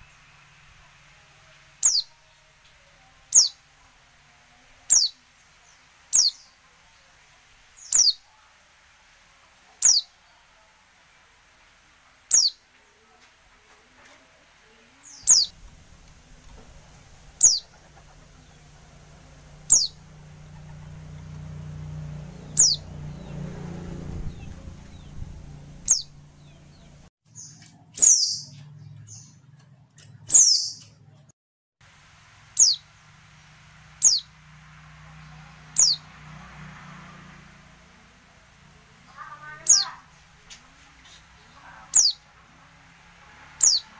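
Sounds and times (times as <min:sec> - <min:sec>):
low hum: 0:15.2 - 0:27.1.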